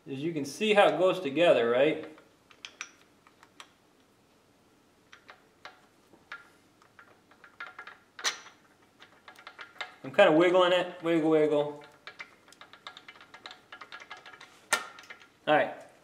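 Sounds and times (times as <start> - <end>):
small metallic clicks and taps: 2.0 - 3.8, 5.1 - 10.0, 11.8 - 15.4.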